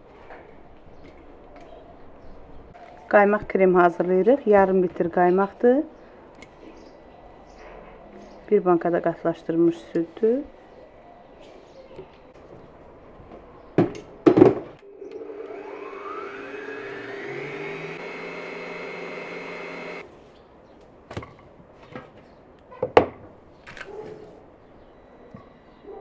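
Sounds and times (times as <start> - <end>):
stand mixer motor whine: 15.0 - 20.0.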